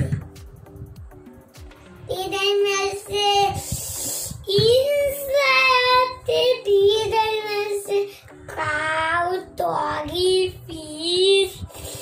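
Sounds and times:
child singing: 4.4 - 11.7.

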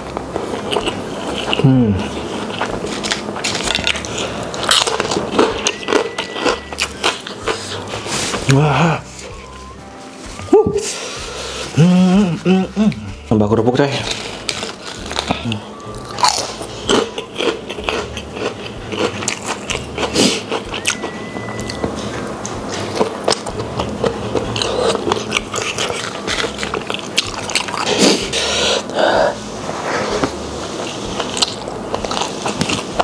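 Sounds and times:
crackers crunching: 0.0 - 9.5, 11.3 - 29.6, 30.2 - 33.0
chewing with wet mouth clicks: 14.2 - 28.2, 31.2 - 33.0.

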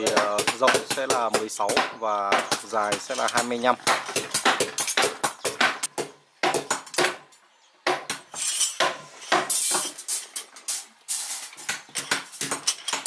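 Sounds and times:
steel bars clinking and clanking: 2.5 - 5.1, 8.3 - 13.0.

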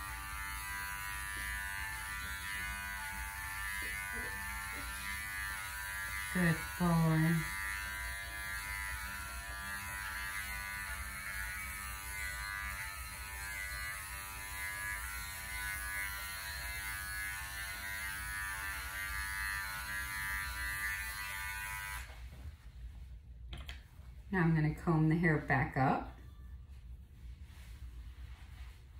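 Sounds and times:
electric clipper humming: 0.0 - 22.2.

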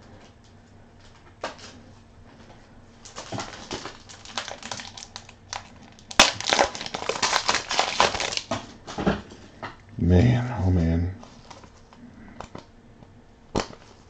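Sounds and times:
plastic packaging crinkling: 3.0 - 8.8, 11.2 - 12.6.

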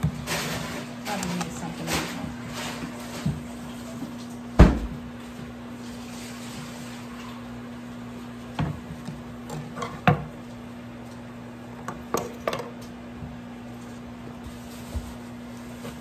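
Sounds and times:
cutting board knocking on countertop: 4.6 - 5.0.

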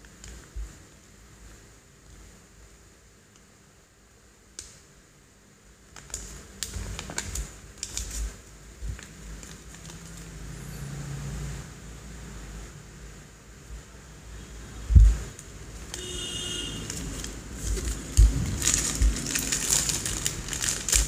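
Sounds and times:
paper and plastic bags crinkling: 5.9 - 10.4, 16.7 - 21.0
soft low bumps: 17.6 - 19.5.

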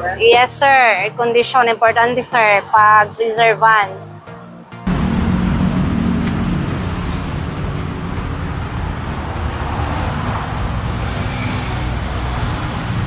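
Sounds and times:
motor vehicle rumbling: 4.9 - 13.0.

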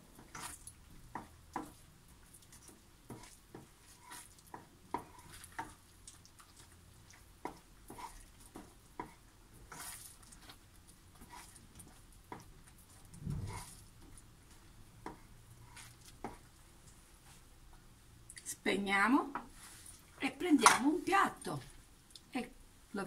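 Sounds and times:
spoon stirring thick risotto: 0.0 - 18.5, 19.3 - 20.2
spoon knocking and scraping pan: 0.1 - 1.8, 2.6 - 5.9, 7.4 - 10.1, 20.5 - 21.0.

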